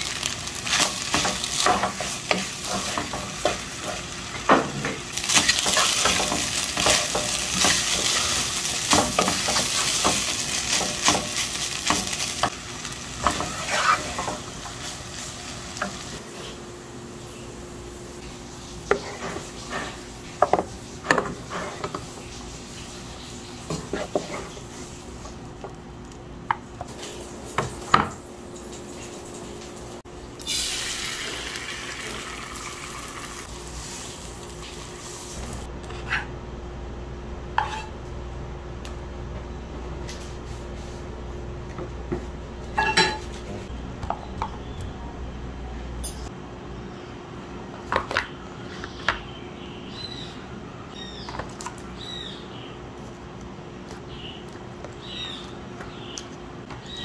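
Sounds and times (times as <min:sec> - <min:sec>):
egg sizzling in frying pan: 0:00.0 - 0:16.2, 0:28.7 - 0:35.7
spatula scraping metal pot: 0:13.2 - 0:14.4, 0:37.6 - 0:37.9.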